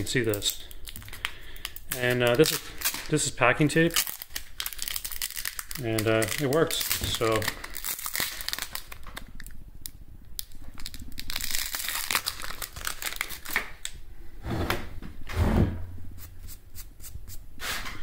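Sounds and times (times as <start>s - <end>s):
plastic tape crinkling: 0.0s - 14.0s.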